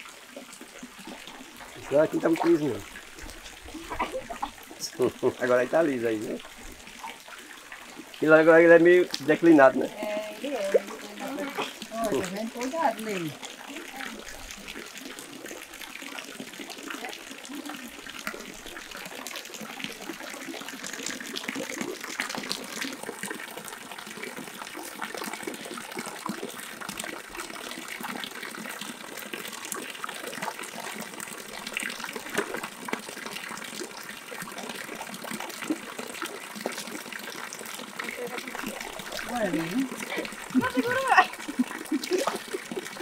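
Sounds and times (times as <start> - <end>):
pond water splashing: 0.0 - 43.0.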